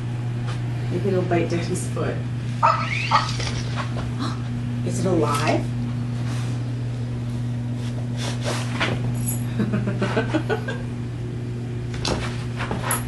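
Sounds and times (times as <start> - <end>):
steady low hum: 0.0 - 13.0
small dog sniffing and snorting: 7.8 - 8.8.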